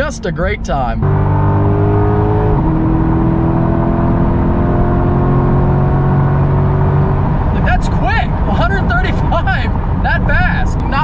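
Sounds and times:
car engine accelerating hard: 0:00.0 - 0:11.0.

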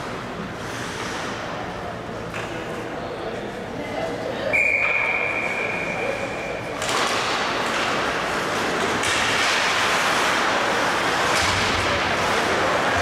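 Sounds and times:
skate blades scraping ice: 0:00.0 - 0:01.4, 0:06.1 - 0:13.0
hockey sticks knocking: 0:06.8 - 0:13.0.

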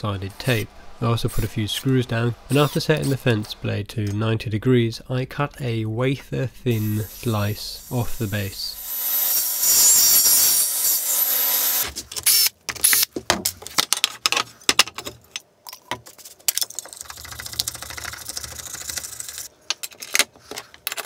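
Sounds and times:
table saw cutting: 0:07.8 - 0:11.8.

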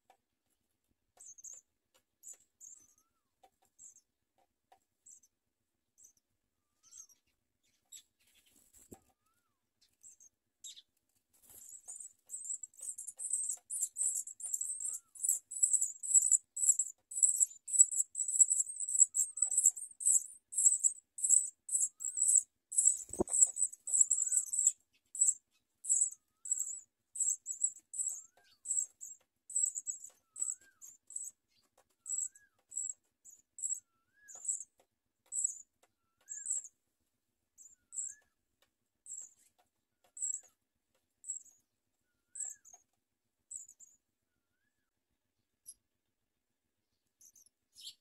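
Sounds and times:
nestlings cheeping: 0:11.6 - 0:28.9, 0:29.5 - 0:31.3.

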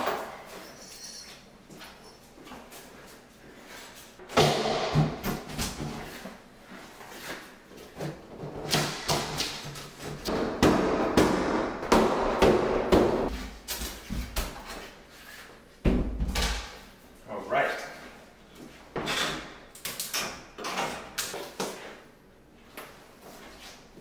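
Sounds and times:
board knocks and thuds: 0:10.3 - 0:13.3
rubber mallet hitting wood: 0:10.3 - 0:13.3.

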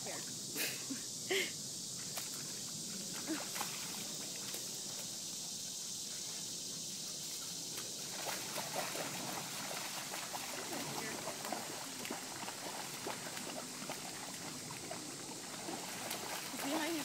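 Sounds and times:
outdoor ambient hiss: 0:00.0 - 0:17.0
dogs splashing in water: 0:02.1 - 0:05.0, 0:07.2 - 0:17.0.

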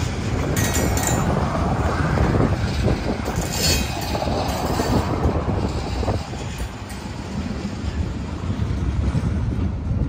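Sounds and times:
clunks and rattles: 0:00.0 - 0:07.5
train wheels rumbling on rails: 0:00.0 - 0:10.0.

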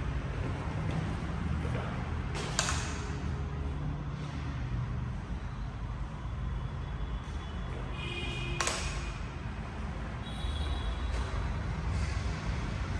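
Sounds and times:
road traffic rumble: 0:00.0 - 0:12.9
sharp click: 0:02.4 - 0:03.1, 0:08.6 - 0:09.1.

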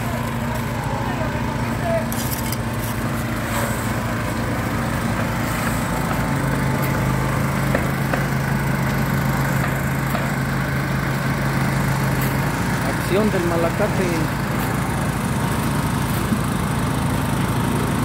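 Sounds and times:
electric winch humming: 0:00.0 - 0:18.0
small engine running: 0:00.0 - 0:18.0.

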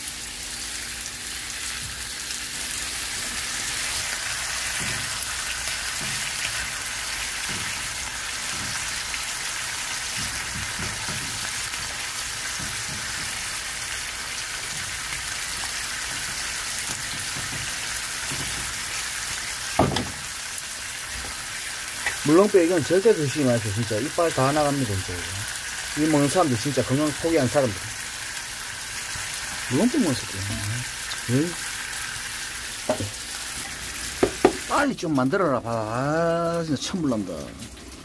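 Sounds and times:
pork sizzling in a frying pan: 0:00.0 - 0:38.0
soft knocks: 0:32.9 - 0:33.2.

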